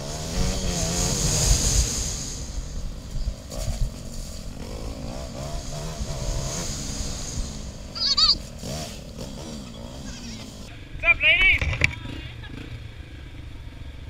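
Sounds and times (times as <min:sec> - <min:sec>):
motorcycle engine running: 0:00.0 - 0:14.0
brief high-pitched call: 0:08.0 - 0:08.4.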